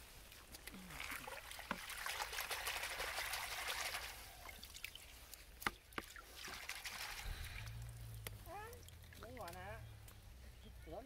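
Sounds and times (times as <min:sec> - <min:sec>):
water splashing in a bucket: 0:00.3 - 0:09.8.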